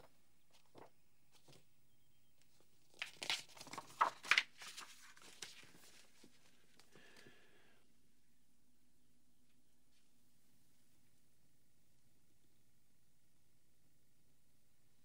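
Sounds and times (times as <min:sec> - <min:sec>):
book pages flipping: 0:00.5 - 0:01.6, 0:02.5 - 0:07.3.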